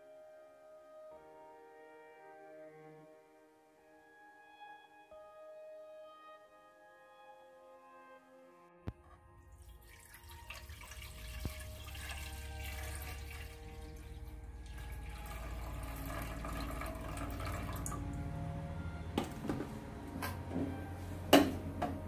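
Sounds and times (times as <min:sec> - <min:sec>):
water pouring into a clay pot: 0:09.4 - 0:18.3.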